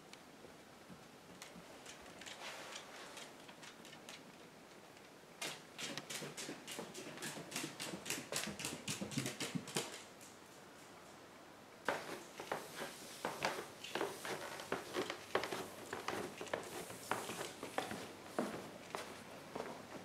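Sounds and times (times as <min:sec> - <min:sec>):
dog claws clicking on wood: 0:01.4 - 0:04.4, 0:05.0 - 0:10.1
footsteps on wooden stairs: 0:11.9 - 0:20.0.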